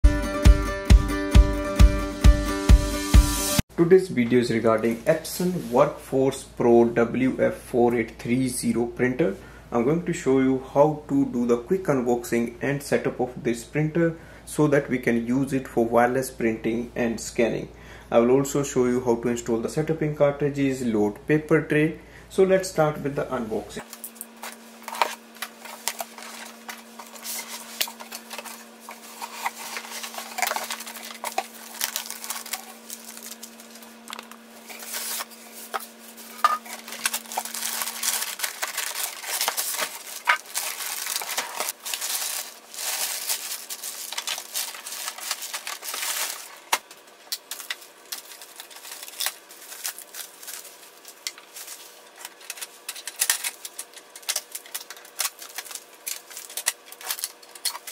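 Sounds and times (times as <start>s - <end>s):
plastic bag rustling and crinkling: 23.8s - 57.9s
polystyrene packing moved: 24.0s - 57.9s.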